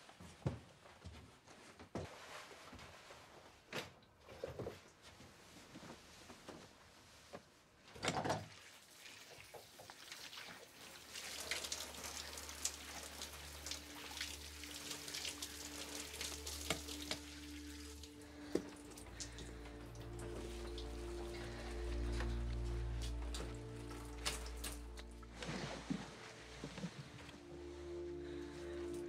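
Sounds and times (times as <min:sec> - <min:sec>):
shower water spraying: 0:08.7 - 0:25.7
low sustained music tones: 0:11.2 - 0:29.0.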